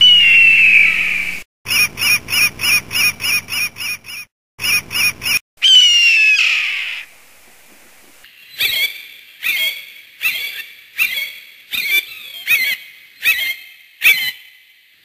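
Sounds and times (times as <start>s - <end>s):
bird of prey screaming: 0.0s - 2.4s, 5.6s - 7.1s
sharp repeated bird calls: 0.0s - 7.1s.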